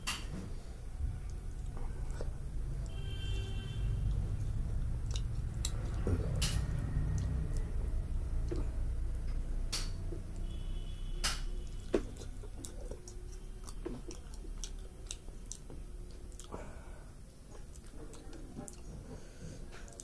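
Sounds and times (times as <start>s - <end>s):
chewing smacks: 1.2s - 3.0s, 4.0s - 10.5s, 11.6s - 16.6s, 17.5s - 20.0s.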